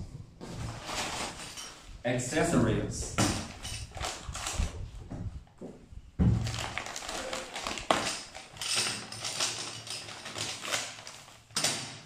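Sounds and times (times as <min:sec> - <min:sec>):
plastic bags crinkling: 0:00.7 - 0:02.0, 0:03.2 - 0:04.9, 0:06.2 - 0:12.0.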